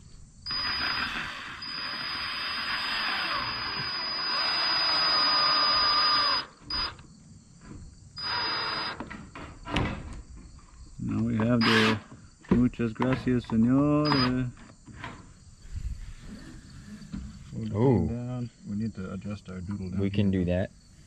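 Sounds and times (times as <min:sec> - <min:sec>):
cordless drill into wood: 0:00.5 - 0:07.0, 0:08.2 - 0:09.1, 0:11.6 - 0:12.1, 0:14.0 - 0:14.4.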